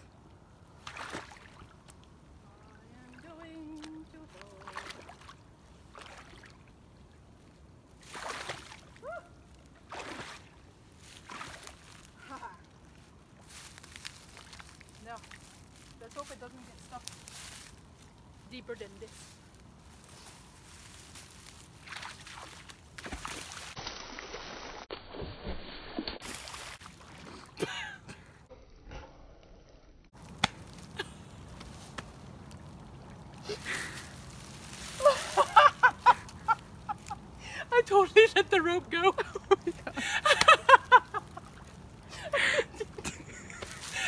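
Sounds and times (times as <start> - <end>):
water splashing and sloshing: 0.1 - 28.4, 30.2 - 44.0
water splashing around legs: 0.8 - 2.1, 3.0 - 6.8, 8.0 - 9.0, 9.7 - 12.2, 21.7 - 27.6.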